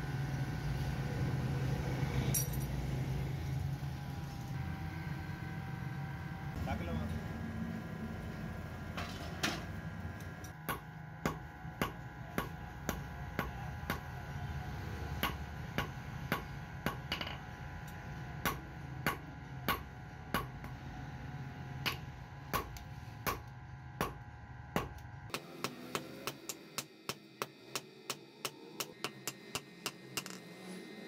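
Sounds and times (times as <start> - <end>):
steady low hum: 0.0 - 31.0
hammer striking hot iron on anvil: 10.4 - 14.3, 15.0 - 20.8, 21.8 - 30.4.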